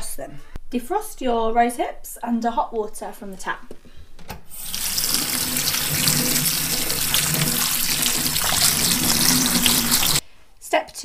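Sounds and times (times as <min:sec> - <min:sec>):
tap water running into colander: 0:04.6 - 0:10.2.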